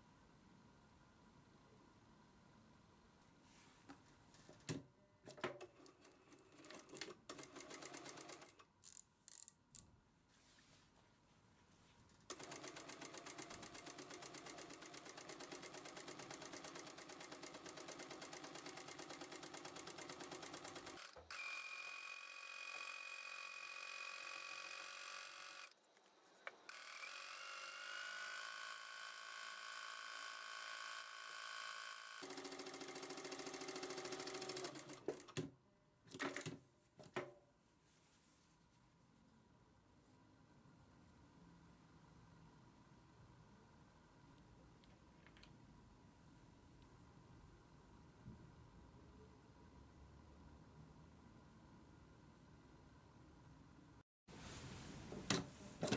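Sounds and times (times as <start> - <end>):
sewing machine needle rattling: 5.3 - 9.5, 12.3 - 21.2, 32.1 - 35.4.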